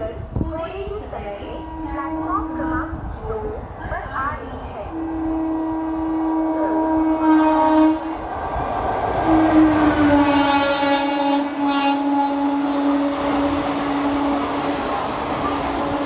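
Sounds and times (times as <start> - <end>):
train horn blasts: 1.5 - 3.0, 4.9 - 8.2, 9.2 - 16.0
train wheels rushing on rails: 2.3 - 16.0.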